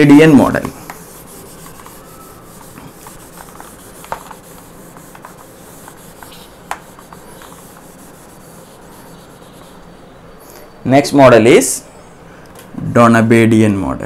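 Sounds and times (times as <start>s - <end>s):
eraser rubbing on whiteboard: 0.8s - 10.2s.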